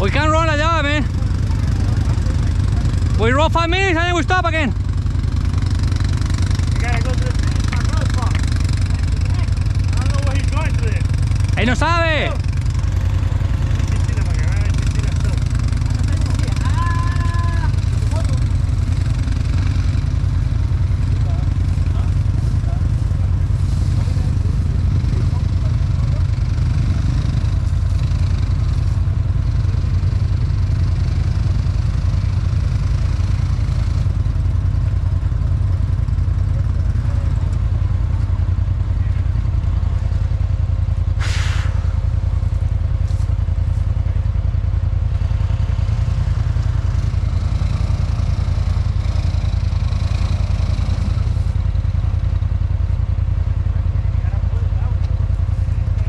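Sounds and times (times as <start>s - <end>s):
atv engine idling: 0.0s - 56.0s
brief hiss: 41.2s - 41.9s.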